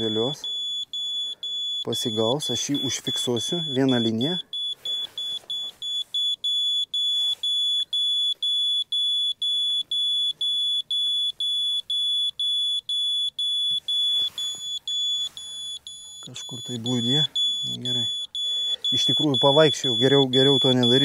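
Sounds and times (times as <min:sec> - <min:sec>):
laser level beeping: 0:00.0 - 0:21.0.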